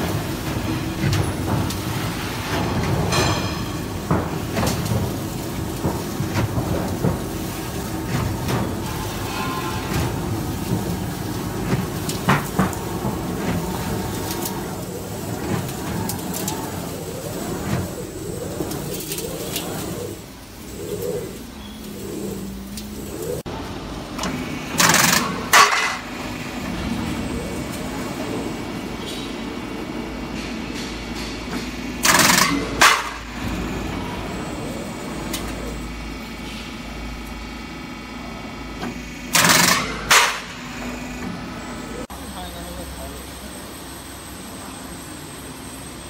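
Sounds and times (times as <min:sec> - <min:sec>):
machine clatters: 0:00.0 - 0:23.5, 0:24.2 - 0:28.6, 0:30.3 - 0:35.7, 0:39.3 - 0:40.6
roll forming machine drone: 0:00.0 - 0:46.0.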